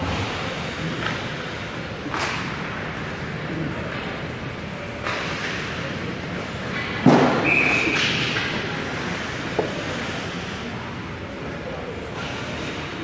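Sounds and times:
puck hitting the net: 0:06.8 - 0:08.6
referee's whistle: 0:07.4 - 0:08.1
skates scraping on ice: 0:07.6 - 0:10.7.

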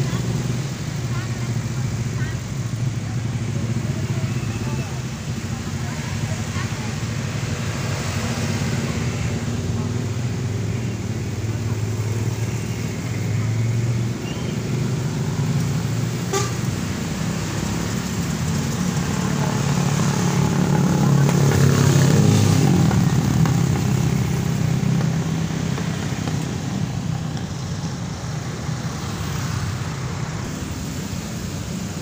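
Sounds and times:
motorcycles and cars passing: 0:00.0 - 0:32.0
truck passing: 0:00.0 - 0:32.0
short horn toot: 0:16.3 - 0:16.6.

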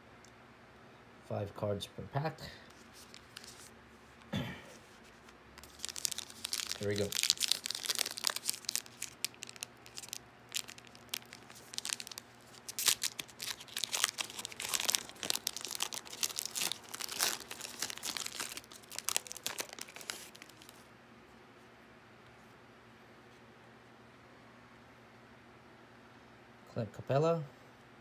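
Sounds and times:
foil pack crinkling: 0:02.7 - 0:04.3, 0:04.9 - 0:20.8.

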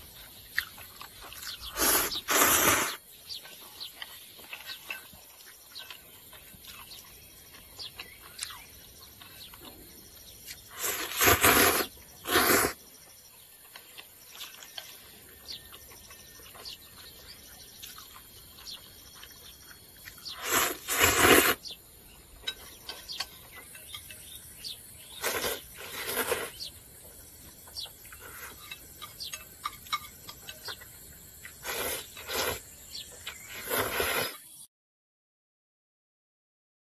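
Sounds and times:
faint chewing clicks: 0:00.0 - 0:02.2, 0:03.2 - 0:20.6
person slurping noodles: 0:01.6 - 0:03.0, 0:10.7 - 0:12.8, 0:20.3 - 0:21.6, 0:25.2 - 0:26.6, 0:31.6 - 0:32.7, 0:33.3 - 0:34.4.

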